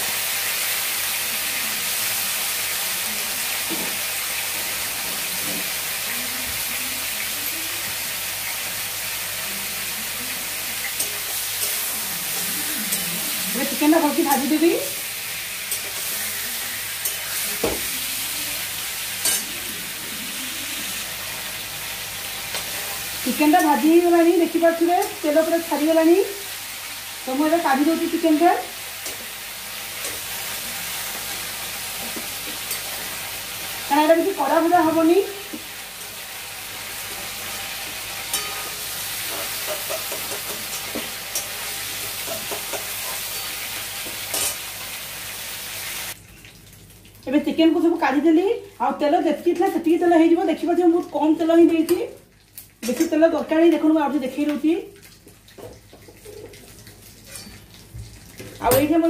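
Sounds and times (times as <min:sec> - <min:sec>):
chicken sizzling in oil: 0:00.0 - 0:59.0
metal spatula scraping a pan: 0:38.1 - 0:43.6.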